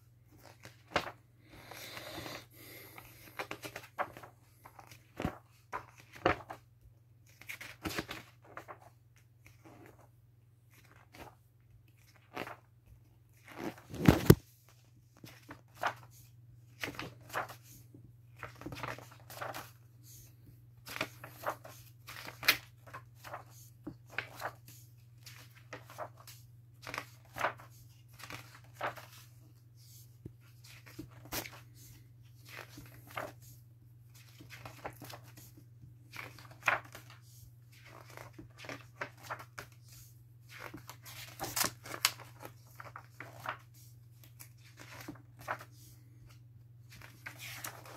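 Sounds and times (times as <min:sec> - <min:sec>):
book pages rustling: 0:00.2 - 0:10.1, 0:10.7 - 0:47.9
book thumps: 0:13.8 - 0:14.4.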